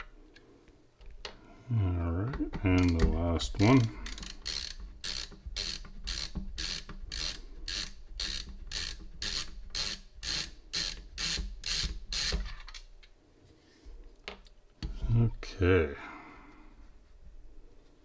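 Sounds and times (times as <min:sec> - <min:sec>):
ratcheting screwdriver clicking: 0:03.6 - 0:12.8.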